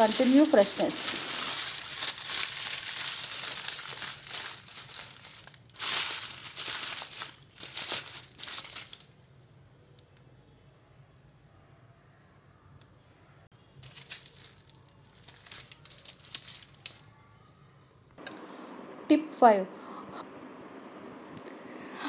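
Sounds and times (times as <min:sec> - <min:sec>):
aluminium foil crinkling: 0:00.0 - 0:09.2, 0:13.8 - 0:17.2.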